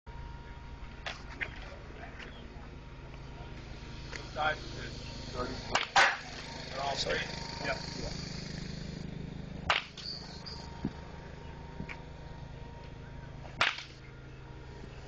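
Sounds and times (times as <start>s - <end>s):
steady low hum: 0.1s - 15.0s
baseball bat hitting ball: 5.7s - 6.4s, 9.6s - 10.1s, 13.6s - 14.0s.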